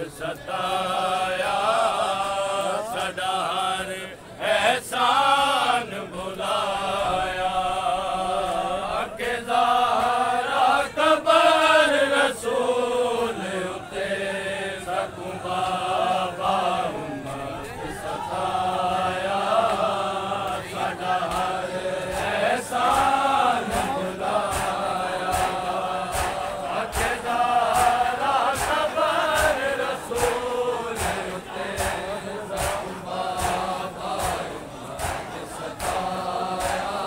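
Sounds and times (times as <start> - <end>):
men chanting in chorus: 0.0 - 37.0
hands slapping chests: 21.2 - 37.0.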